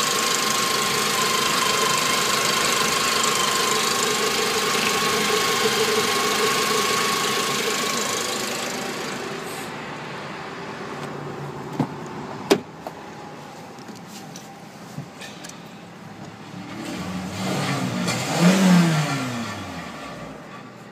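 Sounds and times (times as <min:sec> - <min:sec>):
car engine running: 0:00.0 - 0:11.9.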